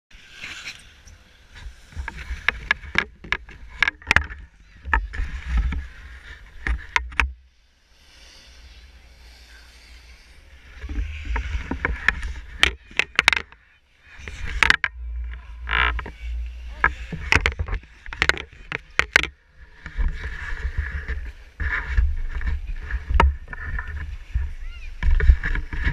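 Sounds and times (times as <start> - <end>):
camera handling knocks and rustles: 16.8 - 19.3.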